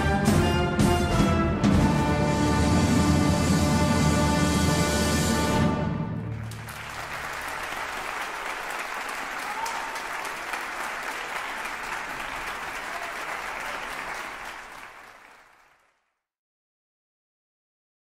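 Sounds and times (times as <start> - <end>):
many hands clapping: 6.3 - 16.2.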